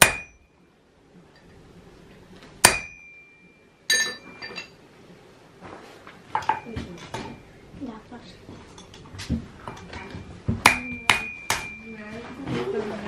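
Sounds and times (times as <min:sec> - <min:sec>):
hammer striking iron on anvil: 0:00.0 - 0:00.5, 0:02.6 - 0:04.8, 0:10.6 - 0:12.0.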